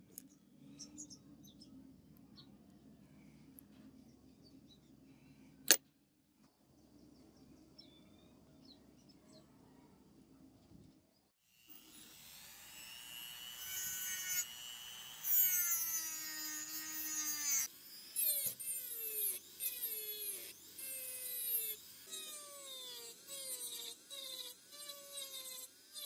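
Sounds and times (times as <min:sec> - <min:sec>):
rotary tool sanding metal: 0:11.5 - 0:26.0.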